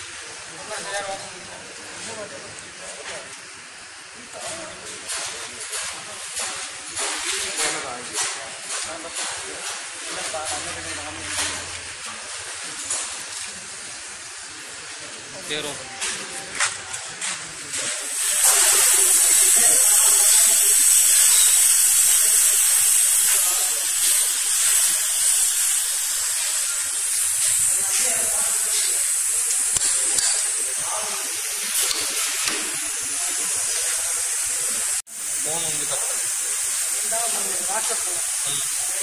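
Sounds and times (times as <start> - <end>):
compressed air hissing: 17.9 - 39.0.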